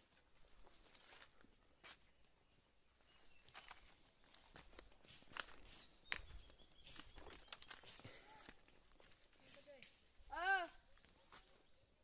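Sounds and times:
footsteps on dry leaves: 3.4s - 10.1s
twigs snapping: 5.3s - 8.6s.

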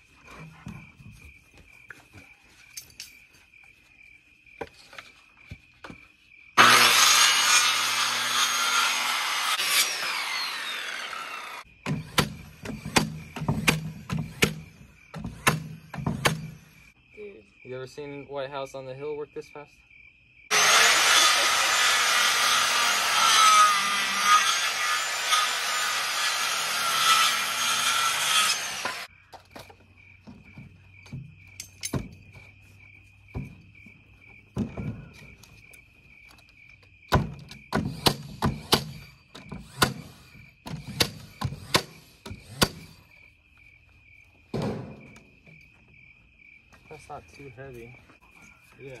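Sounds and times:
crickets chirping: 0.0s - 6.6s, 10.0s - 20.5s, 29.0s - 49.0s
circular saw cutting wood: 6.6s - 14.6s, 20.5s - 29.1s
boards knocking and clattering: 33.3s - 35.4s.

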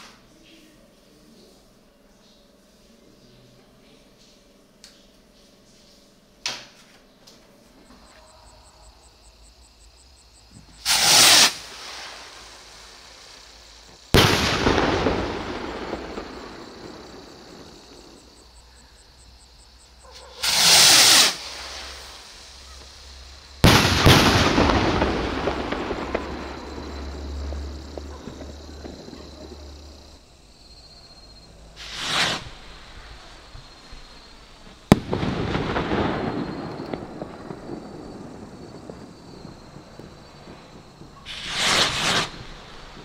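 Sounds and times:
firework bursting bang: 10.6s - 13.2s, 13.9s - 18.4s, 20.4s - 23.0s, 23.6s - 30.2s, 31.8s - 43.0s
rocket launch whoosh: 10.8s - 13.2s, 14.2s - 18.2s, 20.4s - 22.4s, 23.6s - 27.6s, 31.8s - 33.3s, 41.3s - 43.0s.

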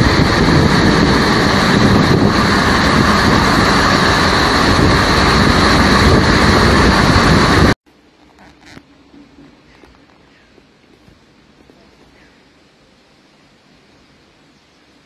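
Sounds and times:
pouring rain: 0.0s - 7.8s
wind buffeting the microphone: 0.0s - 7.8s.

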